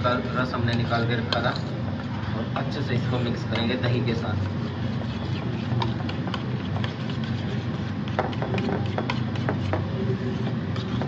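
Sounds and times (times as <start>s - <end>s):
steady low hum: 0.0s - 11.0s
spoon scraping metal bowl: 3.0s - 11.0s.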